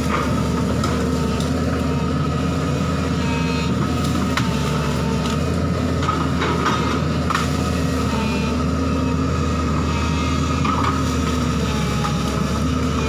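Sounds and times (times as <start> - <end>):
diesel excavator engine running: 0.0 - 13.0
steady whine: 0.0 - 13.0.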